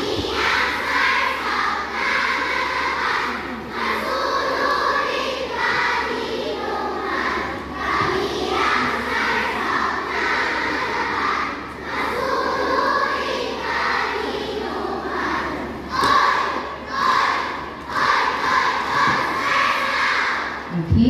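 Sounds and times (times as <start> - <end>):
girls chanting in unison: 0.0 - 21.0.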